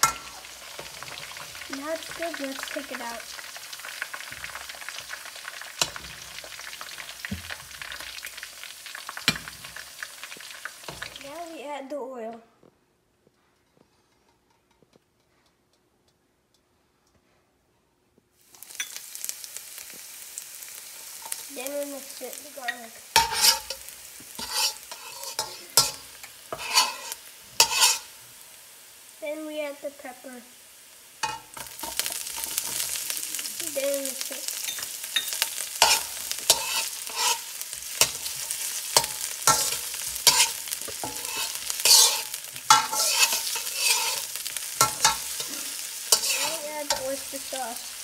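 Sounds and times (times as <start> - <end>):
metal spatula scraping a wok: 0.0 - 2.1, 23.1 - 28.2, 34.6 - 47.6
food sizzling in hot oil: 0.0 - 12.0, 18.4 - 48.0.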